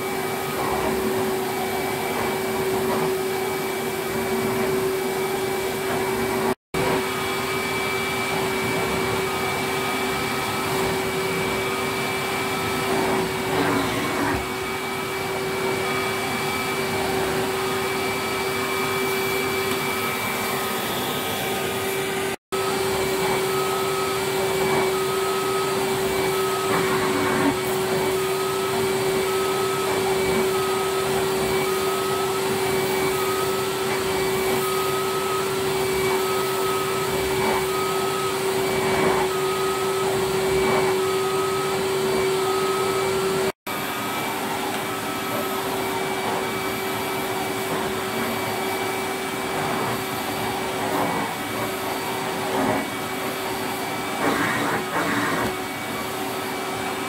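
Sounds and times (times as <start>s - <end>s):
vacuum cleaner motor whine: 0.0s - 57.0s.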